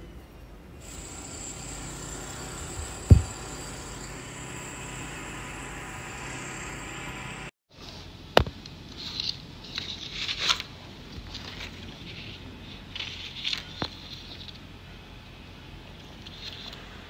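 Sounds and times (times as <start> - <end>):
plastic rustling and scraping: 8.8 - 14.6.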